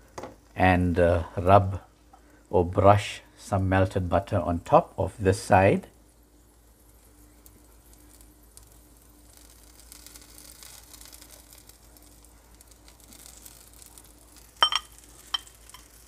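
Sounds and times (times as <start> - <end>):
low sizzling: 0.0 - 16.0
utensil clinking against metal: 14.6 - 15.9.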